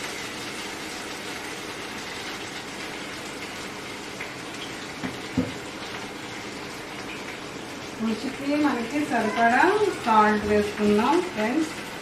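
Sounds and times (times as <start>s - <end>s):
spices sizzling in hot oil: 0.0s - 12.0s
knock: 5.0s - 5.6s.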